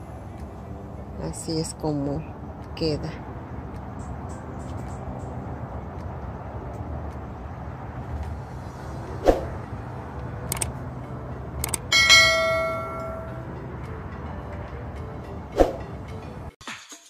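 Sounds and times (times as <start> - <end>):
short clicks: 10.5 - 10.7, 11.6 - 11.9
bright bell chime: 11.9 - 13.4.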